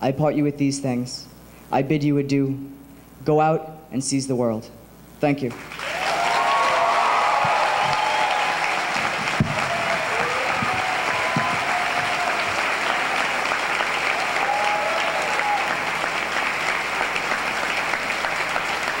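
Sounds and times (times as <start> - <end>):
audience applauding: 5.5 - 19.0.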